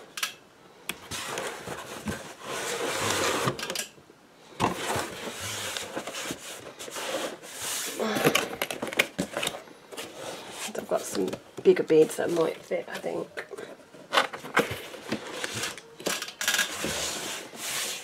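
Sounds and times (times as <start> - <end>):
cardboard box rustling and scraping: 1.1 - 3.6, 4.6 - 8.0, 9.1 - 11.4, 16.6 - 18.0.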